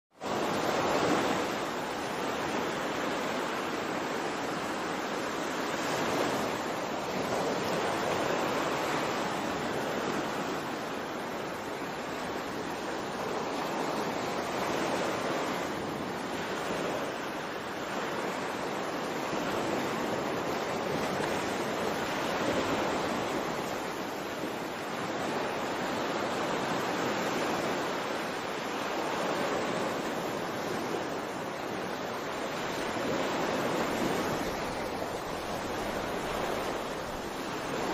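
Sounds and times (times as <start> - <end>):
ocean waves washing: 0.2 - 37.9.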